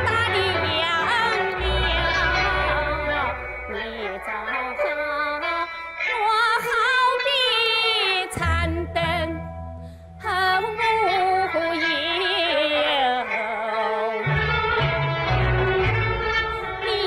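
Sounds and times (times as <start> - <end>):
high voice singing opera: 0.0 - 5.6
instrumental accompaniment: 0.0 - 17.0.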